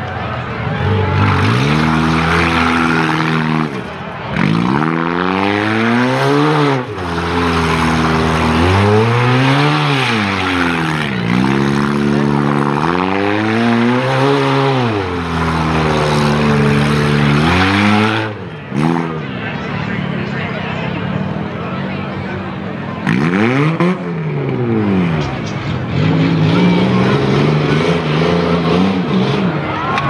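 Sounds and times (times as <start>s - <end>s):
tyres spinning on dirt: 0.0s - 18.9s
car engine revving: 0.0s - 30.0s.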